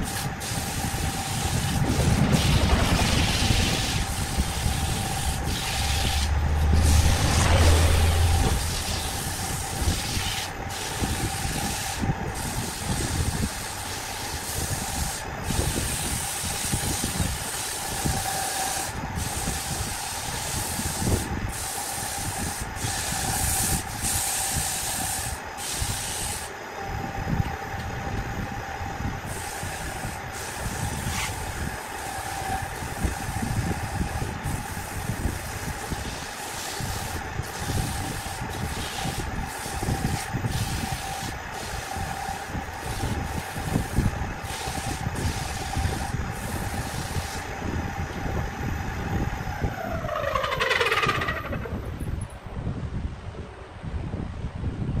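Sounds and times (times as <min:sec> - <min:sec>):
hiss of sanding wood: 0:00.0 - 0:26.6, 0:29.2 - 0:47.6
wood lathe humming: 0:03.2 - 0:12.0, 0:34.9 - 0:47.5.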